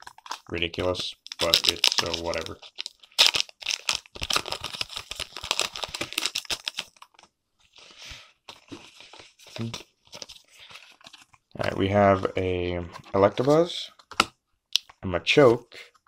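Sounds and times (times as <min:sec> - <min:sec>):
plastic packaging crinkling and tearing: 0:00.0 - 0:07.3.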